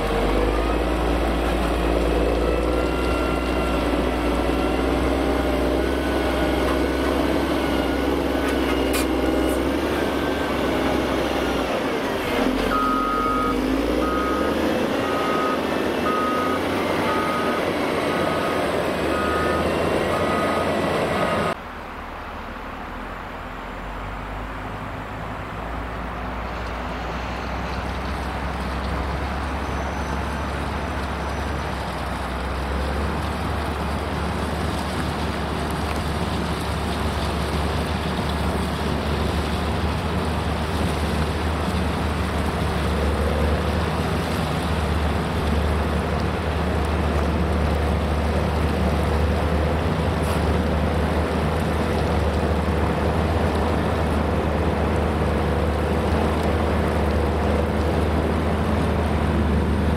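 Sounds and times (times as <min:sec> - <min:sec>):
grader blade pushing gravel: 0:00.0 - 0:21.6, 0:27.4 - 0:59.9
diesel engine running: 0:00.0 - 0:59.9.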